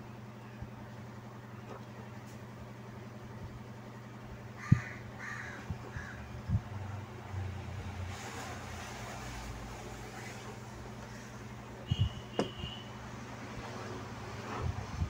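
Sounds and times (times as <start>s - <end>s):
low electrical hum: 0.0s - 15.0s
bird calling: 4.6s - 6.3s.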